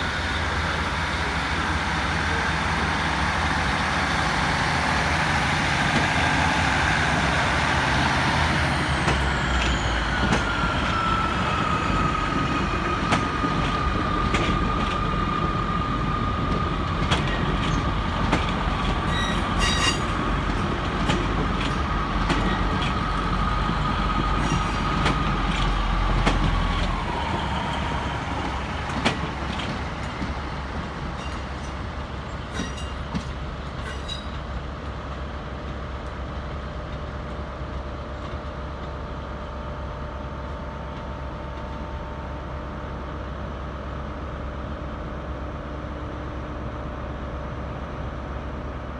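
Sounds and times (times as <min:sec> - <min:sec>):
high-pitched wheel squeal: 0:19.0 - 0:20.1.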